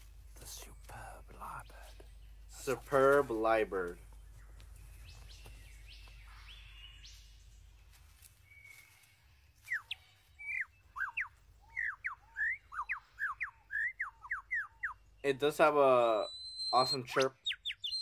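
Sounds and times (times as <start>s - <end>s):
faint forest background: 0.0s - 18.0s
bird whistling sharp notes: 9.7s - 15.0s, 16.0s - 18.0s.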